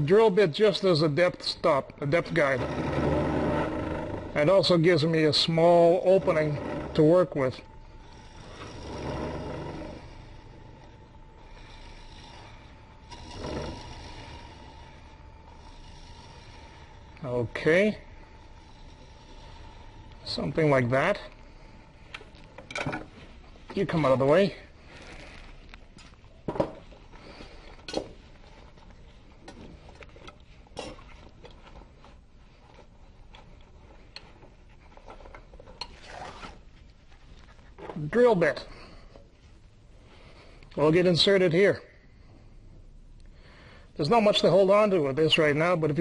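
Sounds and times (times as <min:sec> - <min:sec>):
wood lathe humming: 0:00.0 - 0:35.6
gouge cutting spinning wood: 0:00.7 - 0:22.6.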